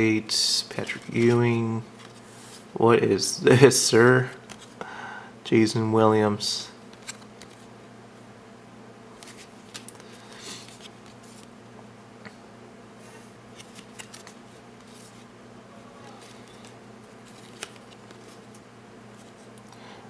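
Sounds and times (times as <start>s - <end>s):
steady low hum: 0.0s - 20.0s
trading cards clicking and rustling: 0.7s - 2.3s, 4.4s - 4.8s, 6.9s - 7.7s, 9.2s - 11.5s, 13.5s - 15.2s, 16.1s - 19.8s.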